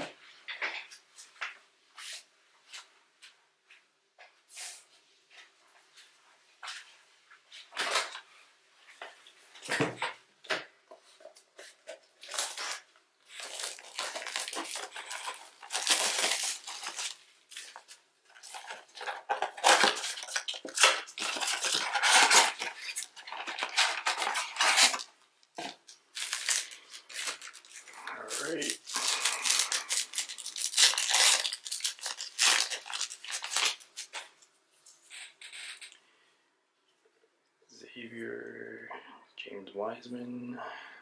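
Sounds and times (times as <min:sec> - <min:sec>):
cards rustling: 0:11.1 - 0:34.5
foil packs tearing and crinkling: 0:12.2 - 0:34.3.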